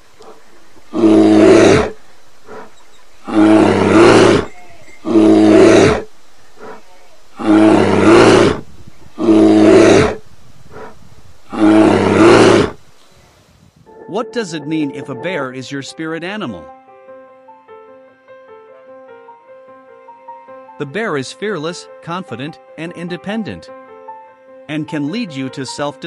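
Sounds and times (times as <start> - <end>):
bear calling: 0.2 - 8.6, 9.2 - 12.8.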